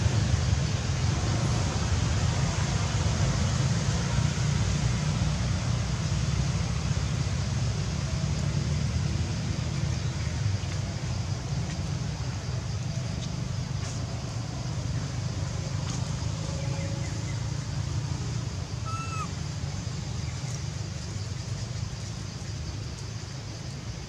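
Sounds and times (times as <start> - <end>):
road traffic rumble: 0.0 - 24.0
high downward-bending call: 18.8 - 19.3.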